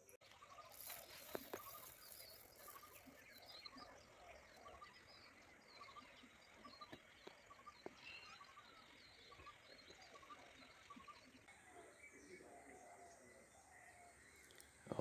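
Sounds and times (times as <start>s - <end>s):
birds chirping: 0.0s - 15.0s
rice grains ticking on ground: 0.2s - 3.8s.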